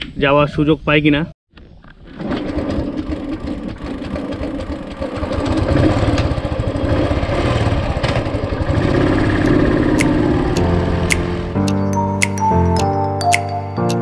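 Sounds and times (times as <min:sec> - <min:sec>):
motorcycle engine running: 0:02.6 - 0:11.6.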